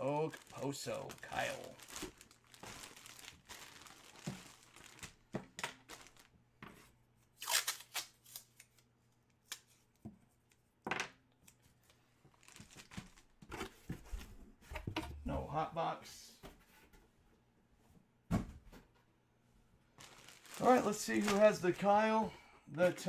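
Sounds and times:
plastic bag crinkling: 0:00.1 - 0:06.3, 0:12.3 - 0:13.4, 0:20.0 - 0:21.8.

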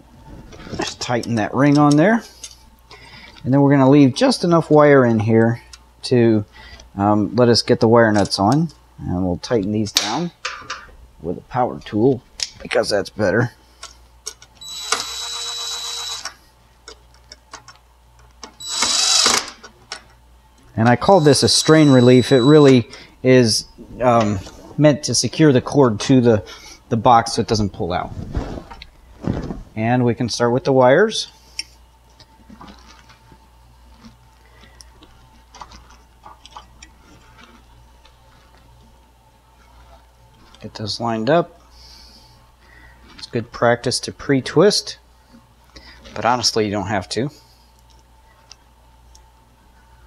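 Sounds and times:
cordless drill motor whine: 0:14.6 - 0:16.4, 0:18.6 - 0:19.6, 0:21.0 - 0:22.9
electrical wires clicking and rustling: 0:32.1 - 0:38.7.

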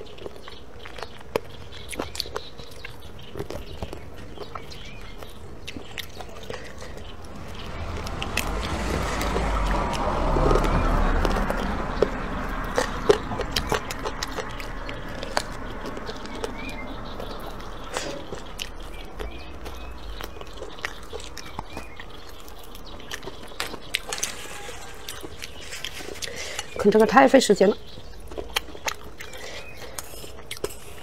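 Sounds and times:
teeth clicking on bone: 0:00.0 - 0:07.2, 0:10.4 - 0:26.8, 0:27.8 - 0:31.0
gnawing and chewing on meat: 0:00.0 - 0:31.0.

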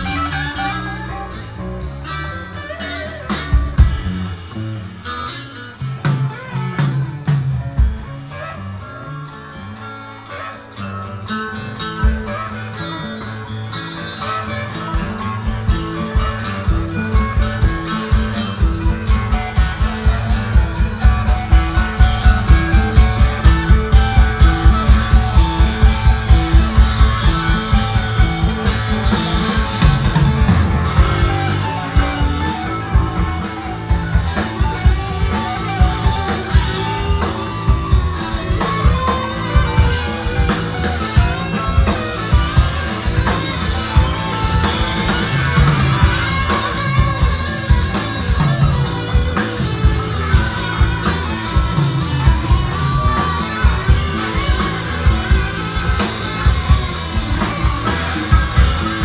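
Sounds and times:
bass guitar: 0:00.0 - 0:59.0
drum kit beat: 0:00.0 - 0:59.0
electric guitars: 0:00.0 - 0:59.0.

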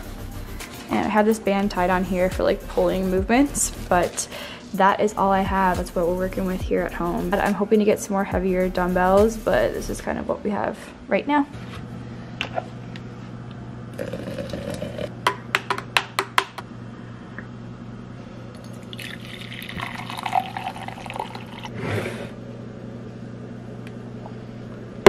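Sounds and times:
low steady hum: 0:00.0 - 0:16.0, 0:16.6 - 0:25.0
coffee pouring into cup: 0:18.6 - 0:21.8.

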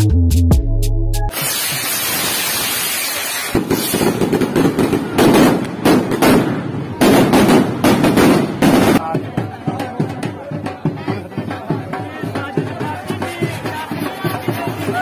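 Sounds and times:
fountain firework hissing: 0:01.3 - 0:05.6
firecracker bangs: 0:01.3 - 0:09.1.

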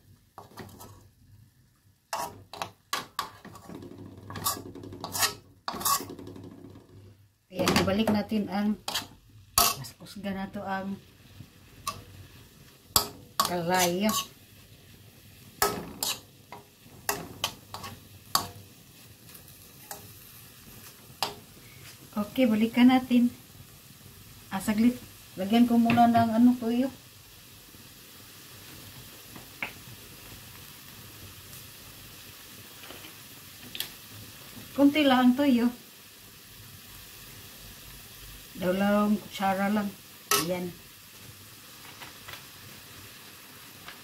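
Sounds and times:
metal spoon scraping a wok: 0:02.1 - 0:06.3, 0:08.8 - 0:10.0, 0:13.0 - 0:14.4, 0:15.6 - 0:18.6, 0:19.8 - 0:20.2, 0:40.3 - 0:40.6.

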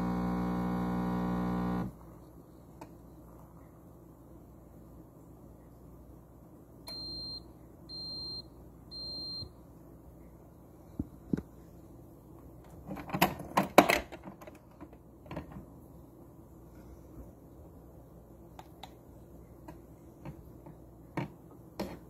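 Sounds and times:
espresso machine beeping: 0:00.0 - 0:01.9.

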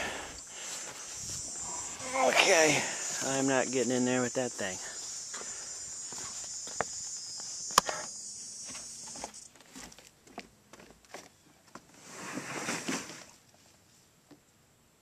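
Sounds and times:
high buzz of insects: 0:00.0 - 0:10.0
footsteps on wooden boards: 0:05.3 - 0:07.9, 0:08.6 - 0:11.9.

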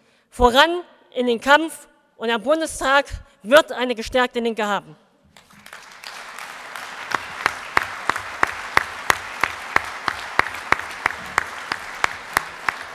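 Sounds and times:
audience applauding: 0:05.3 - 0:12.9
rhythmic clapping in unison: 0:05.3 - 0:12.9.

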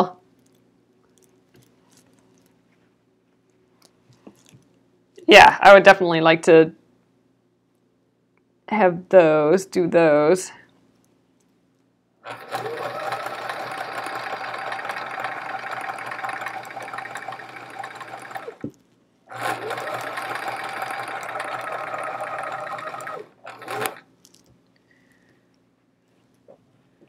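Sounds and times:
sewing machine stitching: 0:12.2 - 0:18.7, 0:19.3 - 0:24.1.

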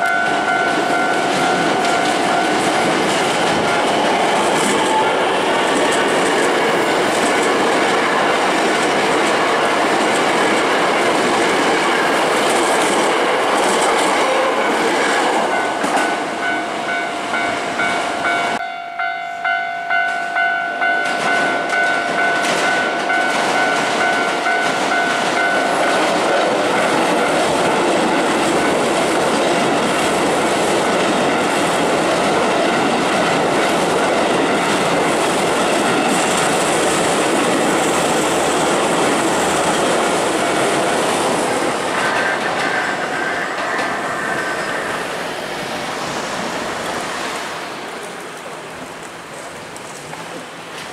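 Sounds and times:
level-crossing alarm bell: 0:00.0 - 0:04.1, 0:15.5 - 0:27.5
trains passing: 0:00.0 - 0:50.9.

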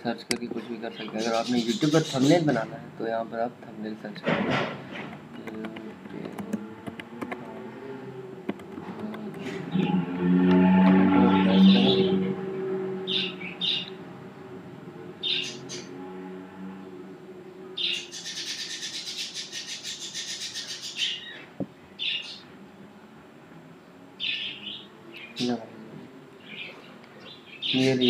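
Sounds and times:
birds chirping: 0:00.0 - 0:04.1, 0:04.9 - 0:22.6, 0:23.7 - 0:28.0
bird trilling: 0:00.9 - 0:02.5, 0:08.6 - 0:10.5, 0:13.0 - 0:14.0, 0:15.2 - 0:16.0, 0:17.8 - 0:21.4.

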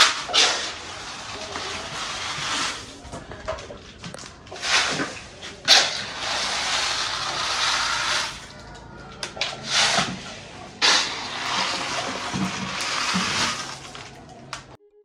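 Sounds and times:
water splashing: 0:03.7 - 0:08.7, 0:09.3 - 0:14.8
beans and water pouring into pot: 0:06.0 - 0:08.6, 0:10.8 - 0:14.2.

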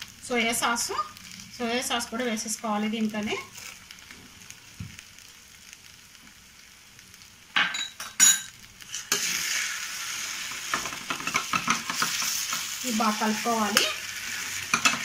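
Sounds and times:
chicken sizzling in a pan: 0:00.0 - 0:15.0
spatula scraping and stirring: 0:08.8 - 0:15.0
metal spatula clinking on pan: 0:14.7 - 0:15.0.

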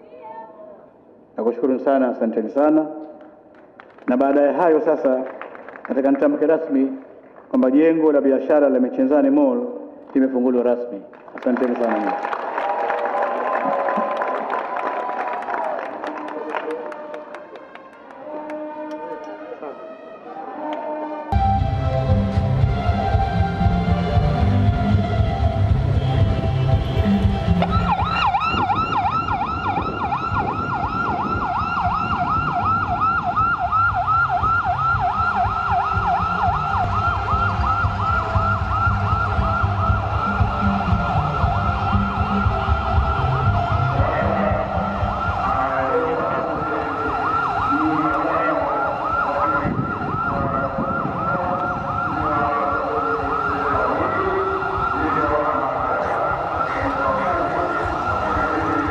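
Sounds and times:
low throbbing music: 0:21.3 - 0:58.9
electronic siren yelping: 0:27.5 - 0:58.9.

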